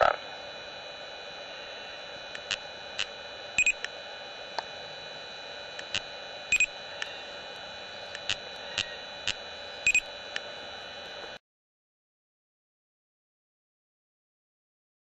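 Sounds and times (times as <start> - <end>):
steady hiss and hum: 0.0 - 11.4
speed gun double beeps: 3.6 - 3.8, 6.5 - 6.7, 9.9 - 10.1.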